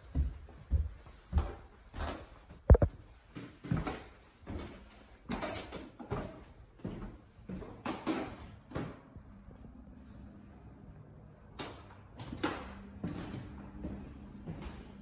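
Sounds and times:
footsteps on wooden stairs: 0.0 - 7.9, 13.0 - 14.9.

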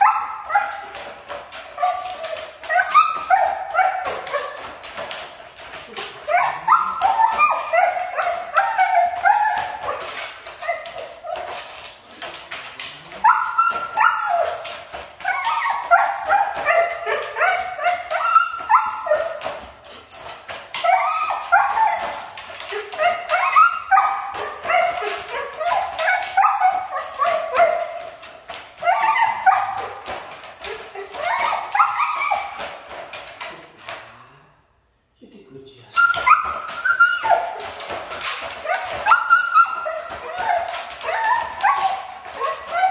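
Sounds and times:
dog howling and whining: 0.0 - 12.3, 13.0 - 33.5, 36.0 - 42.9.

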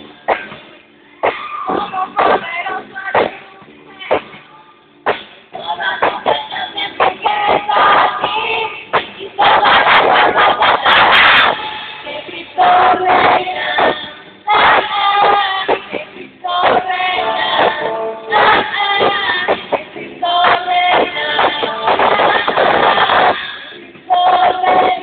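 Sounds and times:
band with singing voices: 5.5 - 25.0.

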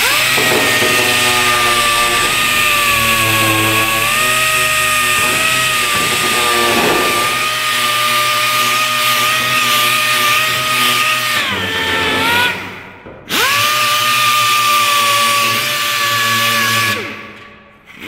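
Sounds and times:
pneumatic disc sander whining: 0.0 - 17.2.

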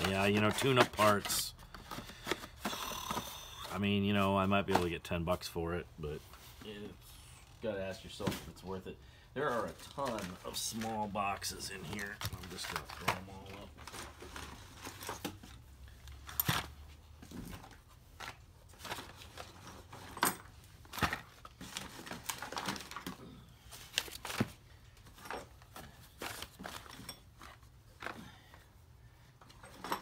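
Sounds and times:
paper rustling: 9.5 - 15.2.

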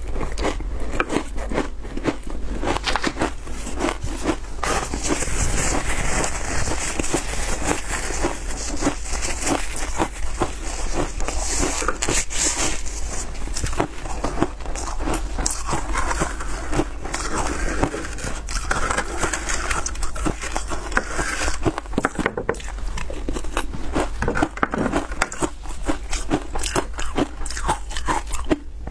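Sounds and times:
shaved ice crunching: 1.1 - 22.7
spoon scraping ice in plastic tray: 2.7 - 28.4.

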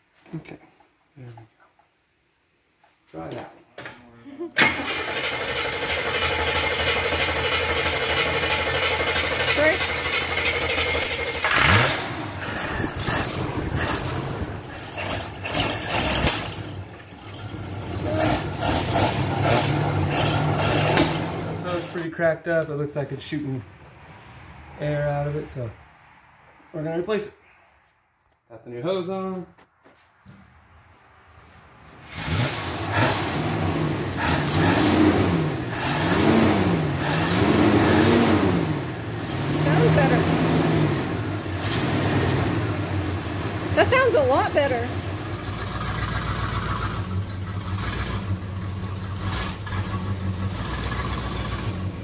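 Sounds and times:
car engine idling: 4.6 - 23.7, 32.2 - 52.0.

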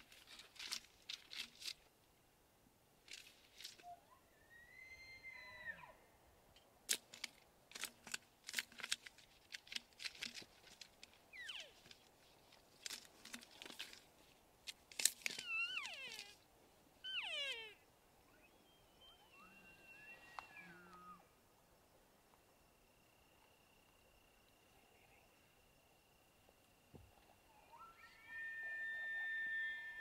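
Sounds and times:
twigs and branches cracking: 0.0 - 1.9, 6.9 - 16.4
elk bugling: 17.1 - 21.3, 27.5 - 30.0.

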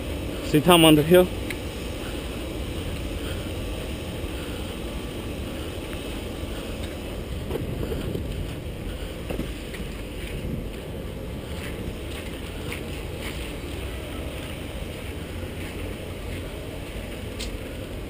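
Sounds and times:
wind rumbling on microphone: 1.3 - 18.0
faint knocks of footsteps: 6.8 - 18.0.

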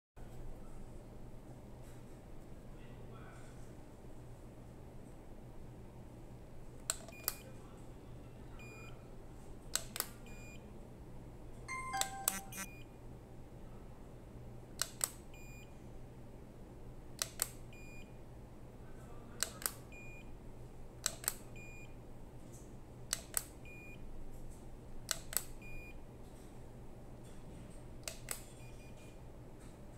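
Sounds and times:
short high beep: 11.7 - 12.8.

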